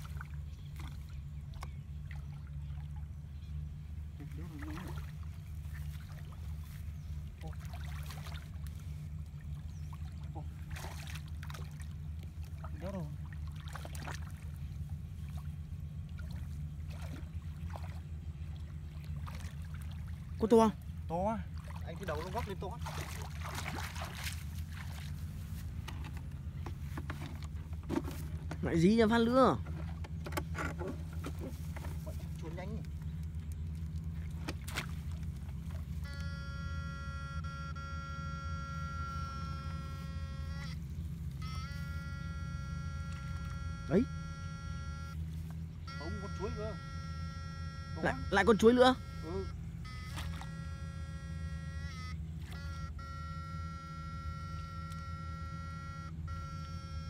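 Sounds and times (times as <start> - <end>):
steady low hum: 0.0 - 57.0
hands splashing in shallow water: 4.5 - 14.6, 21.5 - 25.9, 31.0 - 35.9
high steady multi-tone whine: 34.8 - 57.0.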